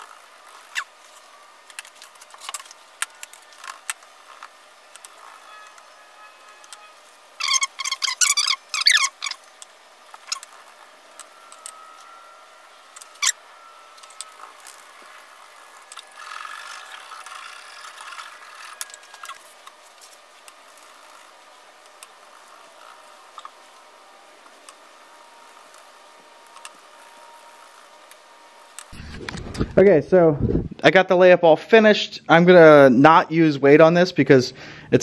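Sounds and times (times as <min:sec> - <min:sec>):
small ticks: 0:00.0 - 0:12.2, 0:12.9 - 0:29.0
metal roller rasping over cloth: 0:00.0 - 0:29.0
plastic spreader squeaking: 0:00.0 - 0:29.6.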